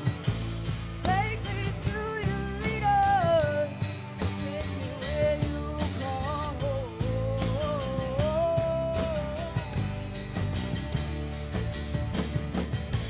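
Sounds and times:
pop rock band playing: 0.0 - 13.0
woman singing: 1.0 - 10.1.

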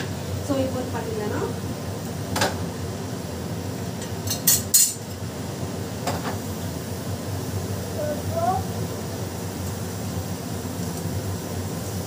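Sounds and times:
utensils clinking against dishes: 4.0 - 5.2.

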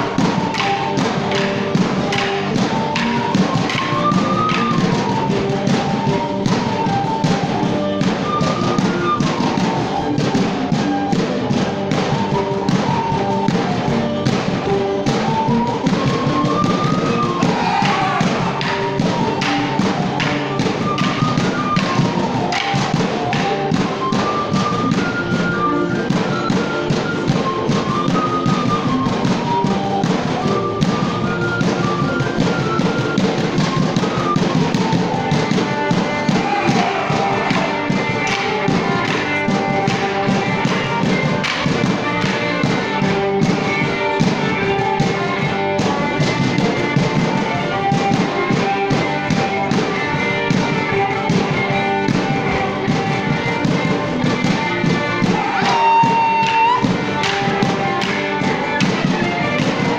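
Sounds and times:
live folk tune: 0.0 - 59.9
wooden sticks clashing: 0.2 - 5.2, 16.8 - 20.4, 21.0 - 23.8, 35.6 - 40.1, 55.2 - 59.0.

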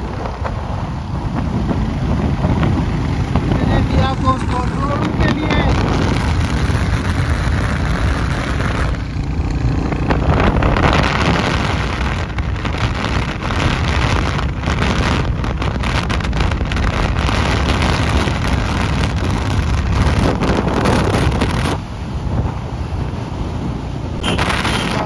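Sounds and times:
road and vehicle noise: 0.0 - 25.0
wind buffeting microphone: 0.0 - 25.0.

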